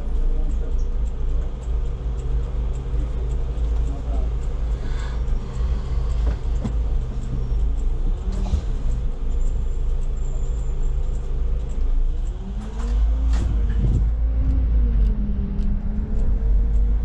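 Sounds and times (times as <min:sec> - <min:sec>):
bus engine rumbling: 0:00.0 - 0:17.0.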